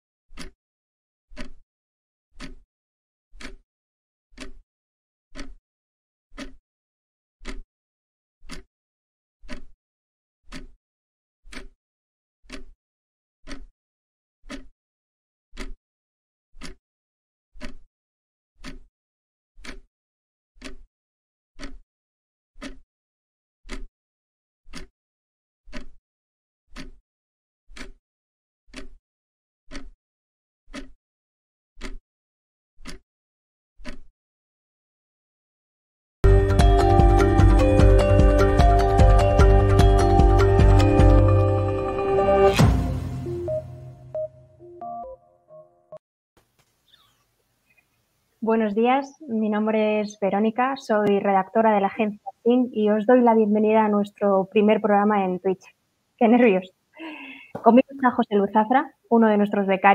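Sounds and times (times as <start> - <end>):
countdown timer ticks: 36.2 - 41.5.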